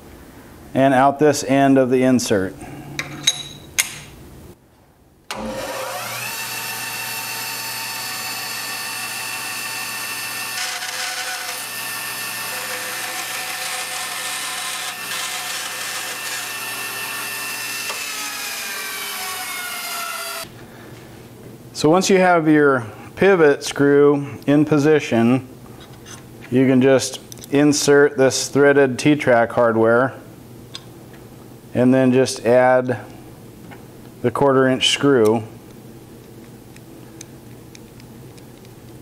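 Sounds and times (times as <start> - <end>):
bandsaw cutting aluminum: 5.3 - 20.5
bandsaw whining: 5.3 - 20.5.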